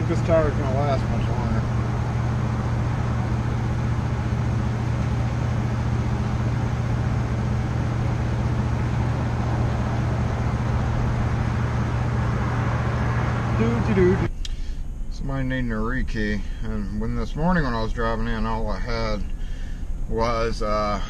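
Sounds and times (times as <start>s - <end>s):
air compressor humming: 0.0s - 15.0s.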